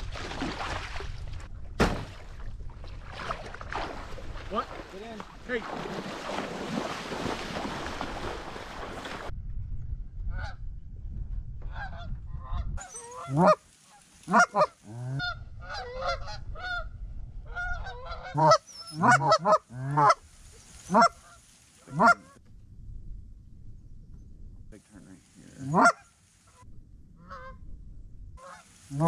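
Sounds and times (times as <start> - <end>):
feet splashing in water: 0.0 - 9.3
geese honking and clucking: 11.7 - 16.9, 17.5 - 20.2, 20.9 - 22.4, 25.5 - 27.6, 28.4 - 29.0.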